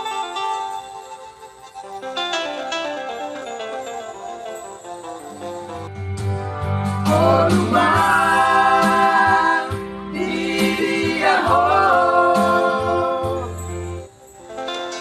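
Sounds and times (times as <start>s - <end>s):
men singing in harmony: 7.1s - 13.7s.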